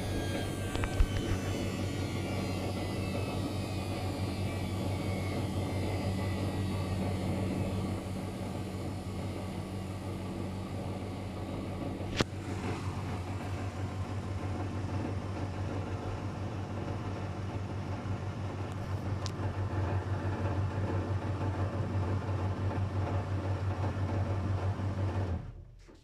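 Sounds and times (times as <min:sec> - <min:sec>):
washing machine spinning: 0:00.0 - 0:26.0.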